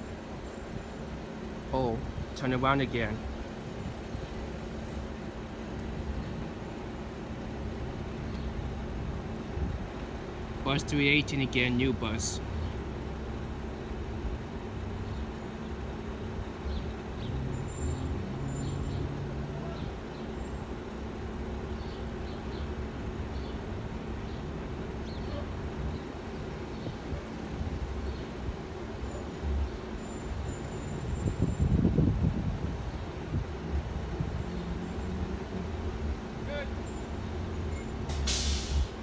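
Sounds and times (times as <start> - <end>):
bus engine low rumble: 0.0 - 39.0.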